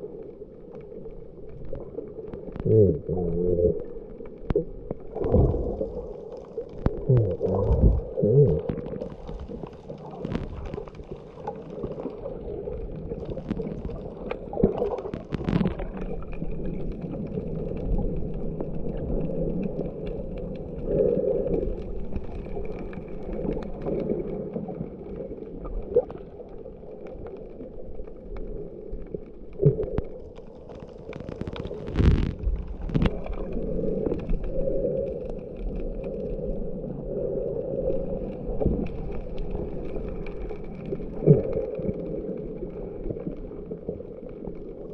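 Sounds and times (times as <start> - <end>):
underwater sloshing and gurgling: 0.0 - 44.9.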